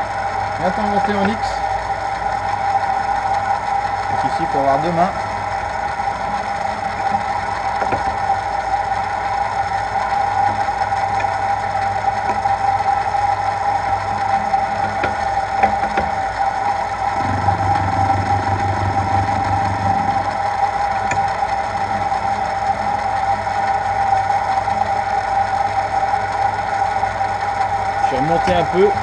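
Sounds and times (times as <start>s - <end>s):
gear whine: 0.0s - 29.0s
milling machine spindle running: 0.0s - 29.0s.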